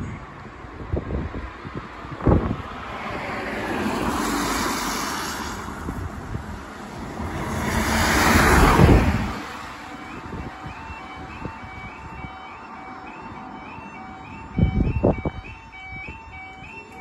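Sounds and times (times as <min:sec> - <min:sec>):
vehicles passing on wet road: 0:00.0 - 0:17.0
two-tone crossing alarm: 0:09.2 - 0:17.0.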